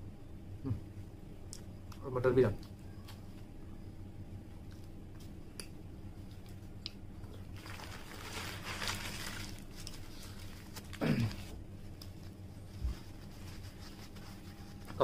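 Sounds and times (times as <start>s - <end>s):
paper wrapper crumpling: 7.5s - 11.6s.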